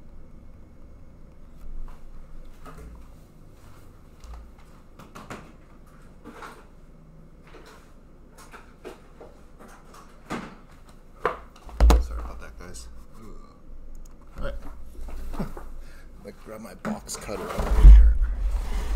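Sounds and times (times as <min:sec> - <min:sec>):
steady low hum: 0:00.0 - 0:05.0, 0:11.8 - 0:18.9.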